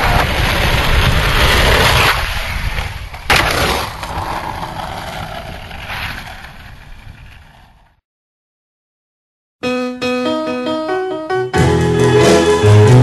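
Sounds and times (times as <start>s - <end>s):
skateboard cracking: 0.0s - 8.0s
skateboard wheels rolling on asphalt: 0.0s - 8.0s.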